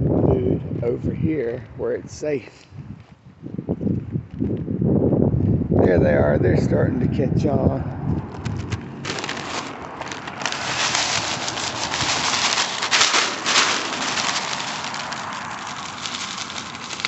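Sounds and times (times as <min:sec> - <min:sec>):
birdseed pouring onto gravel: 0:08.4 - 0:17.0.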